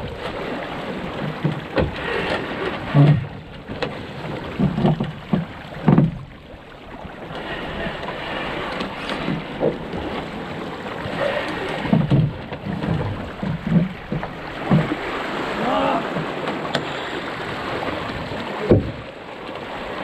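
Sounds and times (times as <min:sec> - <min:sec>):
water splashing along boat hull: 0:00.0 - 0:20.0
low slaps and knocks: 0:04.6 - 0:06.4, 0:11.8 - 0:15.1.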